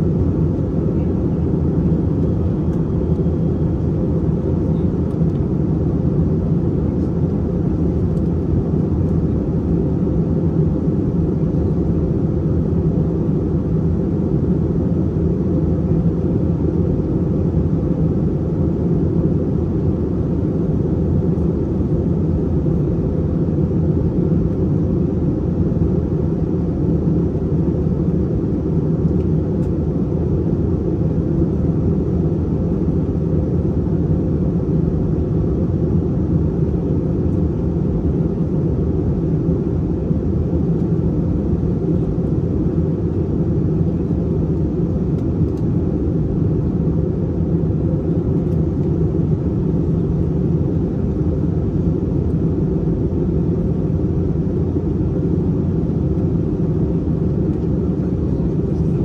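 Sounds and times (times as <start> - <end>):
airplane cabin engine roar: 0.0 - 59.0.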